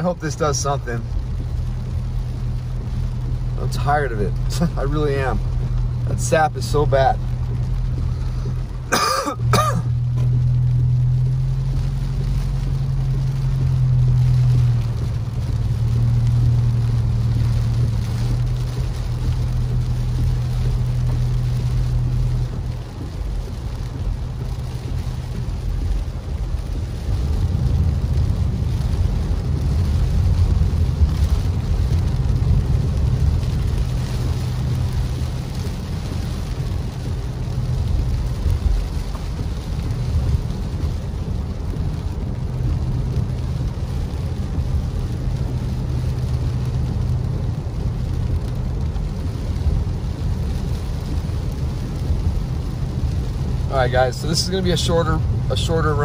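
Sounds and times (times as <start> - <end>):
car engine and tyre hum: 0.0 - 56.0
tyres rumbling on wet pavement: 0.0 - 56.0
person clearing throat: 8.9 - 9.9.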